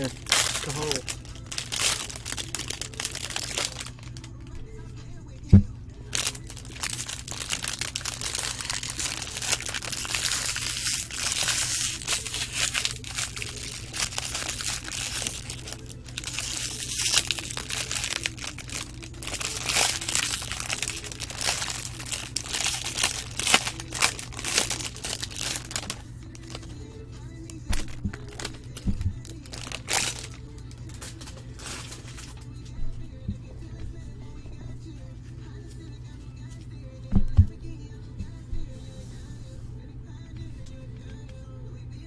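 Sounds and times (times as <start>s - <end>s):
foil wrappers crinkling: 0.0s - 4.5s, 6.1s - 32.5s.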